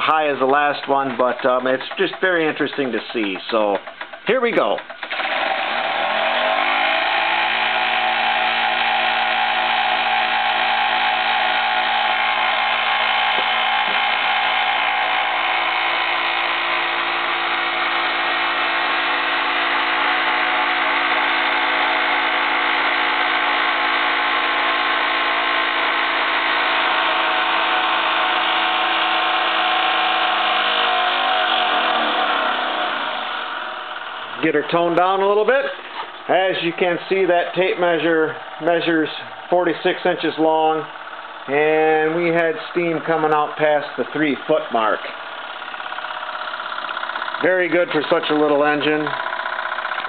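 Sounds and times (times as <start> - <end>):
exhaust steam hissing: 0.0 - 5.5, 9.0 - 50.0
toy steam engine whirring: 0.0 - 50.0.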